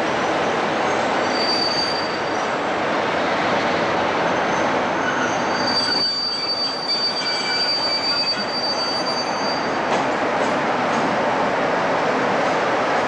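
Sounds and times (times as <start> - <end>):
wheel squeal: 1.2 - 2.5, 4.3 - 9.8.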